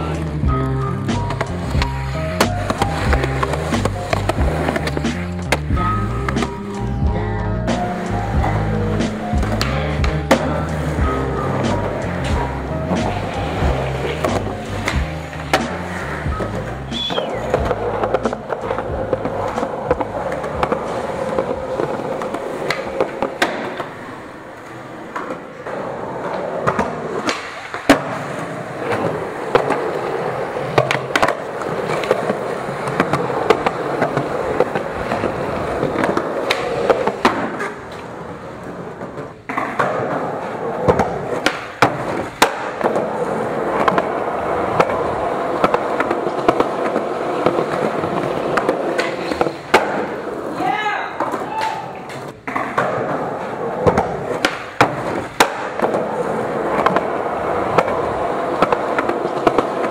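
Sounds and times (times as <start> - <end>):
skateboard wheels rolling on concrete: 0.0 - 59.9
skateboard pops and landings: 26.6 - 30.0, 30.7 - 37.9, 39.4 - 50.2, 52.4 - 59.9.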